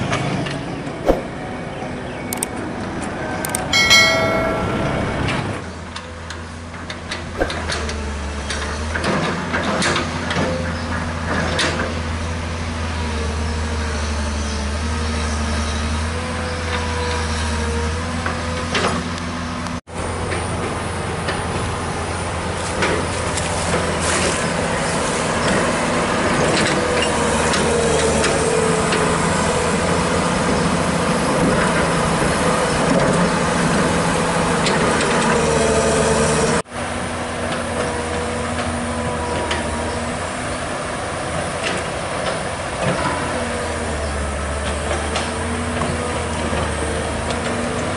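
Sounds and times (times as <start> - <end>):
excavator diesel engine under load: 8.0 - 47.9.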